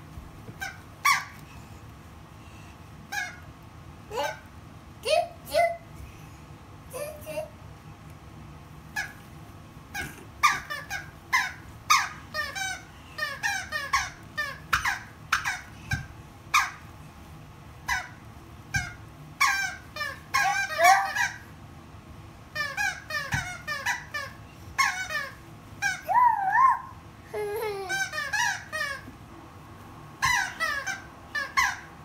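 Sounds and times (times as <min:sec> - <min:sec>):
dog toy squeaker squeaking: 0:10.4 - 0:16.0, 0:18.8 - 0:21.4, 0:22.6 - 0:26.8, 0:30.2 - 0:31.9.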